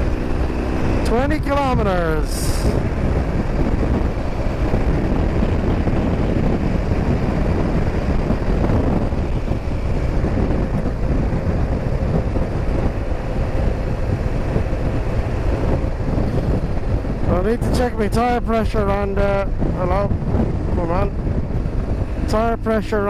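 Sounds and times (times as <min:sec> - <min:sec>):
motorcycle engine running: 0:00.0 - 0:23.0
wind rushing over microphone: 0:00.0 - 0:23.0.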